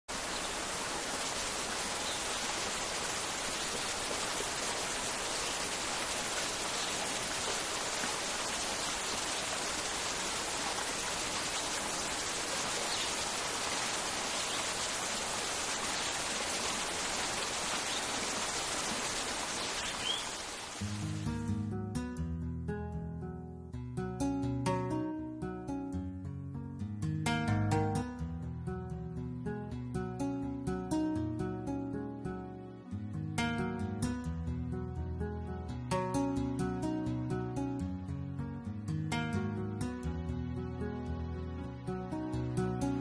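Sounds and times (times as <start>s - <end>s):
waterfall rushing: 0.1s - 21.3s.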